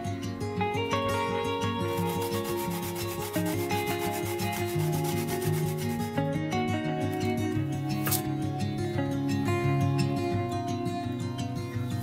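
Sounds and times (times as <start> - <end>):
acoustic guitar music: 0.0 - 12.0
garlic rasping on grater: 2.0 - 6.2.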